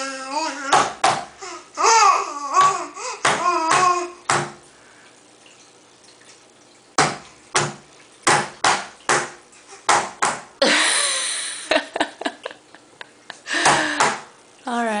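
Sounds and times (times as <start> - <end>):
baby slapping wet tray: 13.6 - 14.3.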